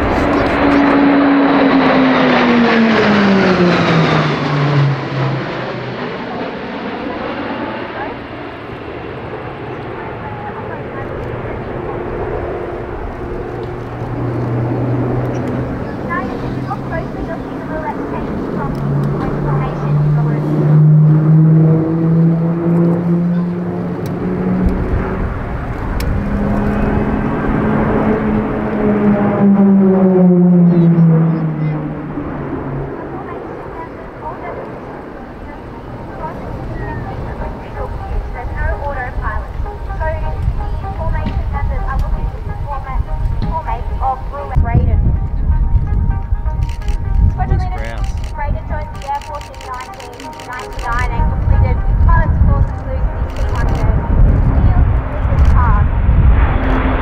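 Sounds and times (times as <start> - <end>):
propeller aircraft drone overhead: 0.0 - 57.0.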